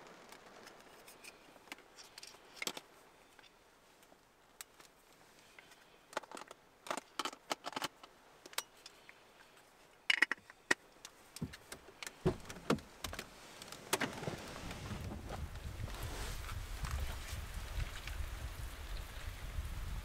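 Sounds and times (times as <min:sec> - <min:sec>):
wind and rain: 0:00.0 - 0:20.0
camera handling clicks and rattles: 0:00.3 - 0:03.5, 0:05.6 - 0:09.2, 0:10.0 - 0:12.2
car door opening: 0:12.2 - 0:13.2.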